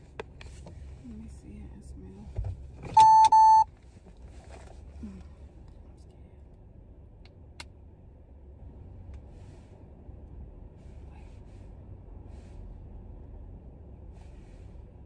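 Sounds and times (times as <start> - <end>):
low background rumble: 0.0 - 15.0
short electronic beeps: 3.0 - 3.7.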